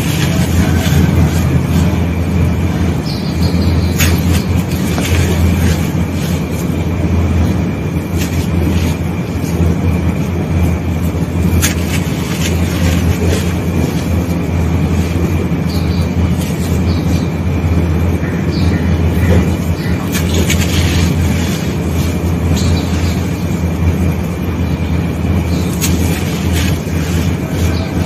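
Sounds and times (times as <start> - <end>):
steady low hum: 0.0 - 28.0
hands crumbling gritty sand: 3.9 - 10.2, 11.0 - 17.0, 20.1 - 23.4, 25.6 - 28.0.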